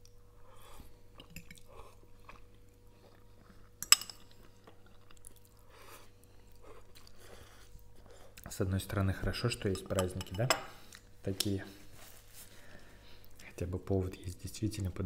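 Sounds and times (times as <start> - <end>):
people chewing and slurping noodles: 0.5 - 8.4.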